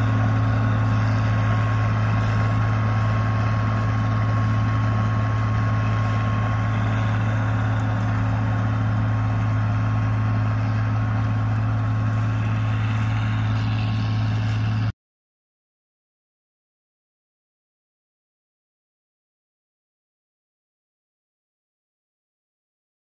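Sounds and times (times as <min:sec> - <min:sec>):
tractor engine under heavy load: 0:00.0 - 0:15.0.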